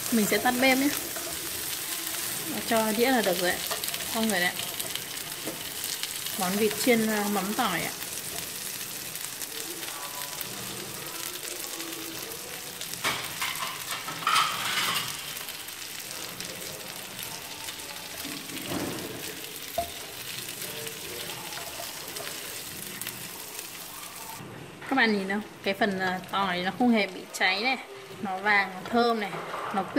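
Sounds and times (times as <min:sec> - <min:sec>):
meat sizzling in a frying pan: 0:00.0 - 0:24.4, 0:25.0 - 0:29.9.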